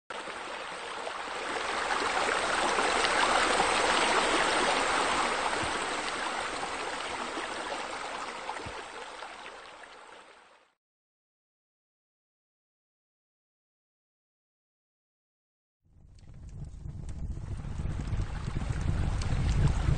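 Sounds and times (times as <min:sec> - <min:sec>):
running water rushing: 0:00.1 - 0:10.8.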